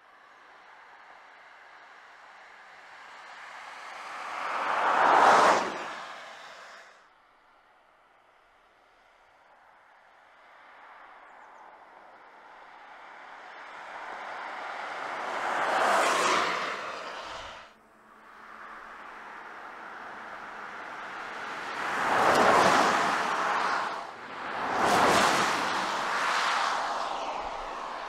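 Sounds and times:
tyres hissing on wet road: 3.8s - 7.0s, 13.9s - 17.8s, 20.5s - 28.0s.

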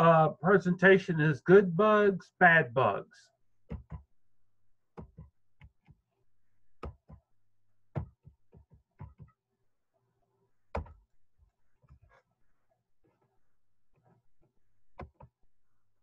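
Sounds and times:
irregular clicks and light knocks: 4.9s - 6.2s, 7.9s - 9.4s.

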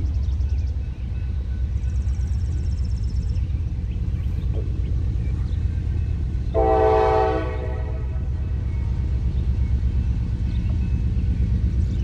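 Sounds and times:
steady low rumble: 0.0s - 12.0s
locomotive air horn blast: 6.5s - 8.3s.

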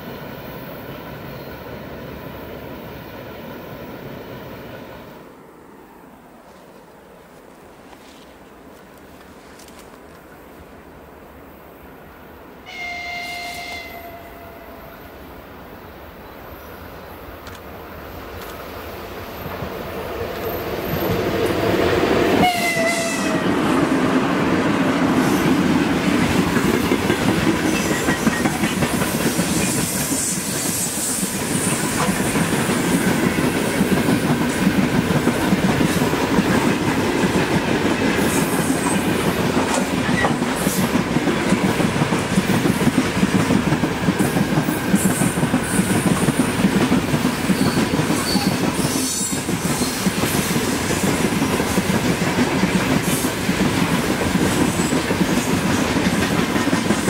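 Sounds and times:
freight train rumbling past: 0.0s - 9.0s, 10.3s - 57.0s.

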